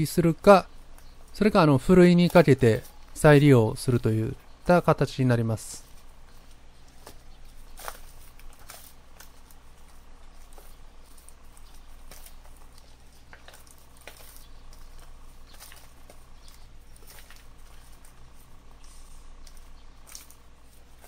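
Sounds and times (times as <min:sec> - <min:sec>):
grains pattering onto newspaper: 0:00.0 - 0:21.0
soil crumbling and roots tearing: 0:05.8 - 0:21.0.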